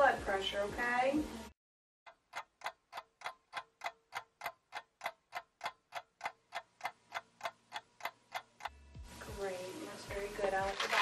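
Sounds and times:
clock ticking: 0:02.1 - 0:09.5.

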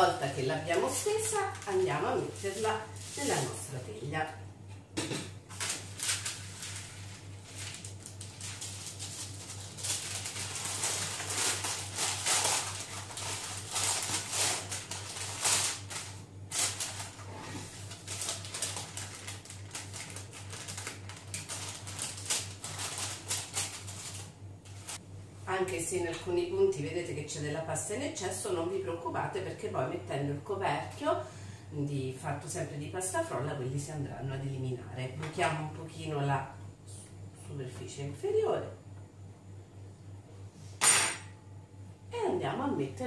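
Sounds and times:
steady low hum: 0:00.0 - 0:43.0
baking paper rustling and crinkling: 0:00.2 - 0:03.9, 0:05.5 - 0:25.0.

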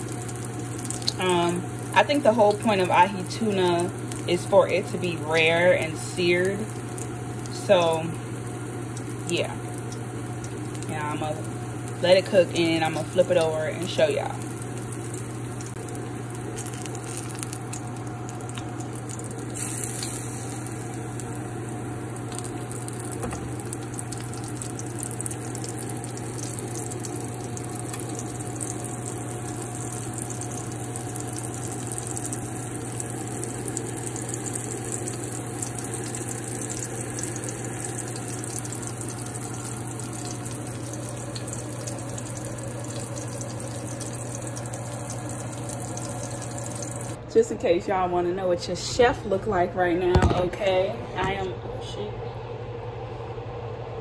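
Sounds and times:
hot oil sizzling: 0:00.0 - 0:47.2.

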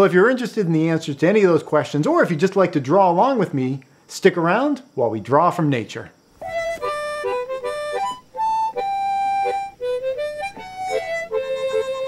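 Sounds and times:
instrumental theme music: 0:06.4 - 0:12.0.

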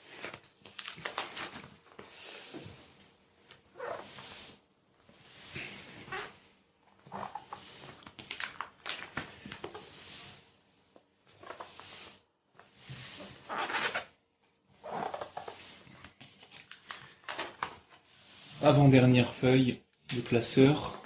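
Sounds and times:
plastic binder pages rustling: 0:00.1 - 0:02.1, 0:08.0 - 0:09.7, 0:16.0 - 0:18.0.

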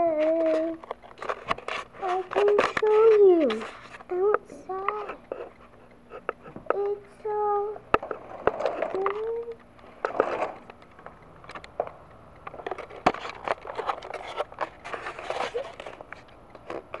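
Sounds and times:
phone handling rustling and scraping: 0:00.0 - 0:04.1, 0:07.9 - 0:17.0
sharp clicks and knocks: 0:00.0 - 0:17.0.

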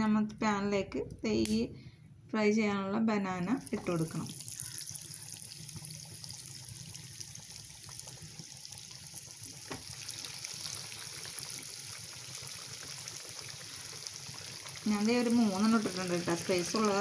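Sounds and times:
hot oil sizzling and crackling: 0:03.4 - 0:17.0.

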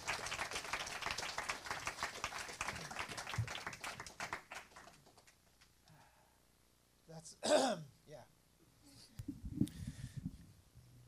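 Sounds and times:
crowd applauding: 0:00.0 - 0:05.4.

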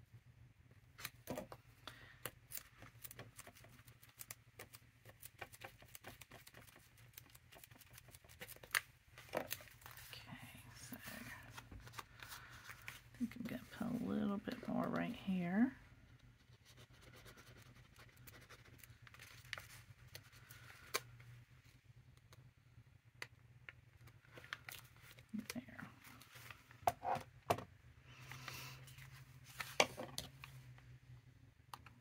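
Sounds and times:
paper and fabric rustling: 0:02.6 - 0:15.6, 0:28.2 - 0:30.6.

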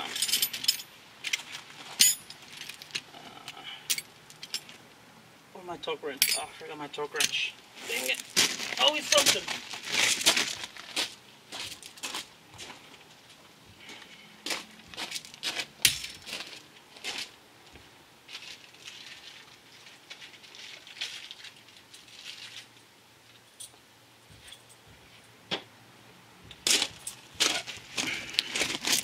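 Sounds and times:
footsteps crunching on gravel: 0:07.8 - 0:20.5, 0:26.6 - 0:29.0.

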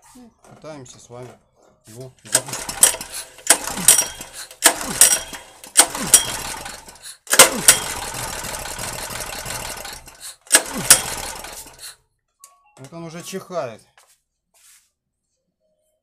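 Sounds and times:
recoil starter pull: 0:02.2 - 0:12.0
small engine cranking over: 0:02.3 - 0:12.0.

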